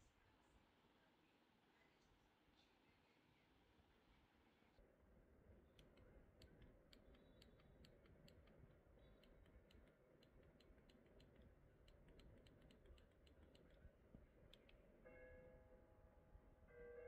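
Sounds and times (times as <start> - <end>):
faint small clicks: 5.7 - 14.8.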